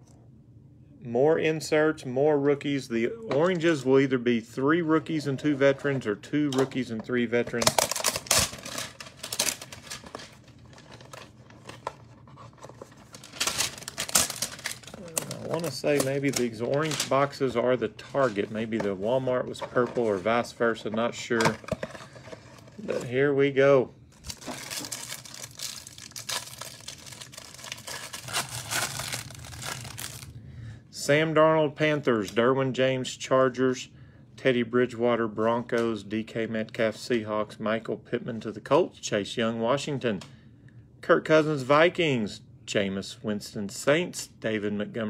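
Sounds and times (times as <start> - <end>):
card packaging crinkling: 7.5 - 20.5, 24.1 - 30.3.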